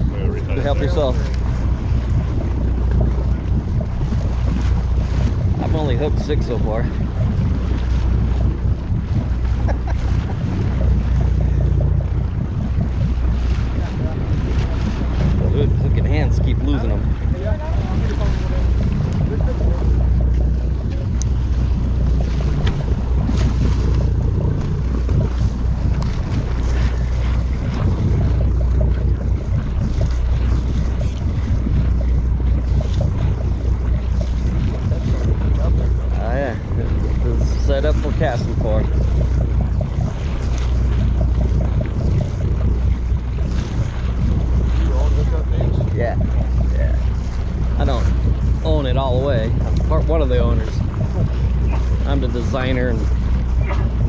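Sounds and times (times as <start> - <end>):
boat engine drone: 0.0 - 54.0
sea wash: 0.0 - 54.0
wind buffeting microphone: 0.0 - 54.0.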